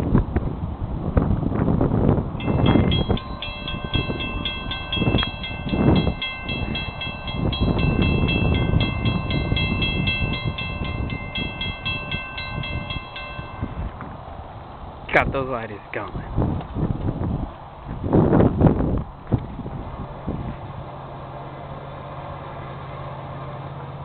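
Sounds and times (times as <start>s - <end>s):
wind rumble on microphone: 0.0s - 21.9s
crossing warning bells ringing: 2.4s - 16.1s, 19.6s - 24.0s.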